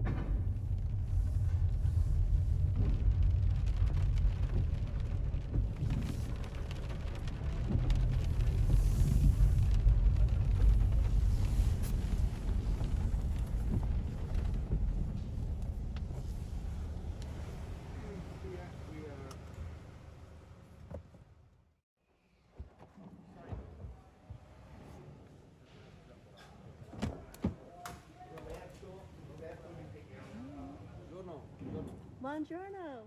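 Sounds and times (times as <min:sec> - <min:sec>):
car rumbling over cobblestones: 0:00.0 - 0:21.8.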